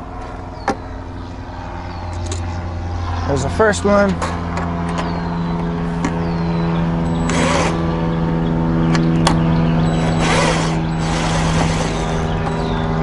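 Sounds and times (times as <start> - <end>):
low mechanical hum: 0.0 - 13.0
cordless drill whirring: 7.0 - 7.9, 9.8 - 12.9.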